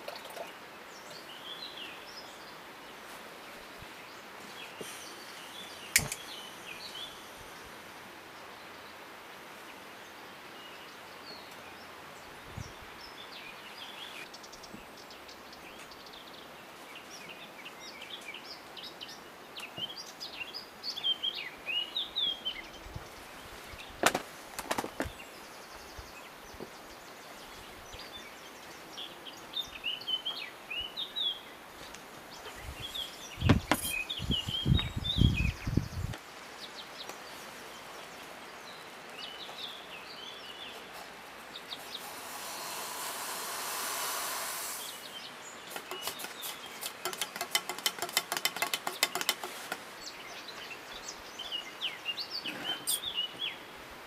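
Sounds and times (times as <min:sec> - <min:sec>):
small birds chirping: 0:00.0 - 0:53.8
sharp click: 0:06.0 - 0:06.3.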